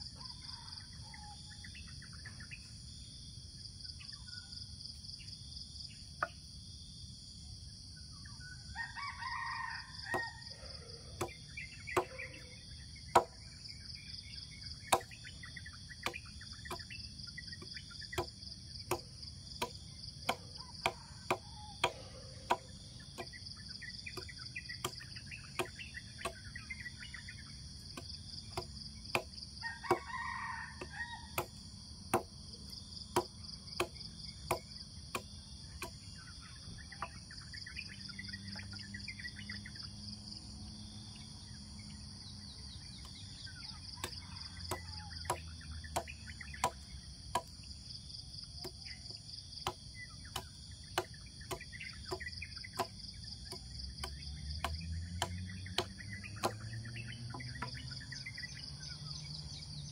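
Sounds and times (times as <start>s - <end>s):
high insect drone: 1.6s - 59.9s
sharp knocks: 13.1s - 13.4s.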